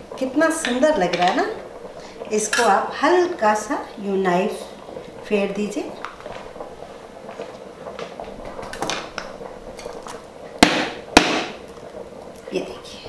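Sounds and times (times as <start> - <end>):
lid knocking on countertop: 10.6 - 11.6.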